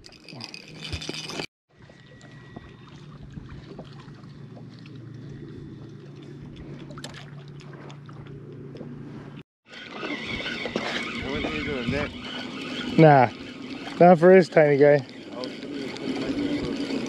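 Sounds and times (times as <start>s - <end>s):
boat motor humming: 0.0s - 17.0s.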